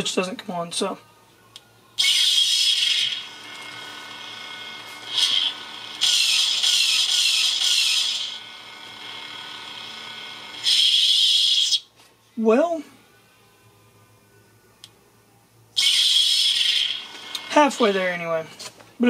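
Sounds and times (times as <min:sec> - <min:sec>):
lightsaber ignition: 0:02.0 - 0:03.8, 0:05.0 - 0:08.4, 0:15.8 - 0:18.0.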